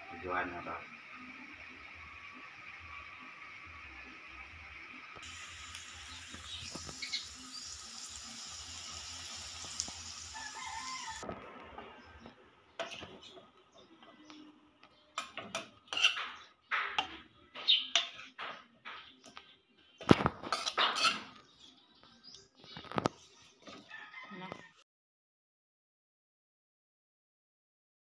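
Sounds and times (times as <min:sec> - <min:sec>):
steady hiss: 0:05.2 - 0:10.4
utensil clinking on ceramic bowl: 0:15.2 - 0:16.3.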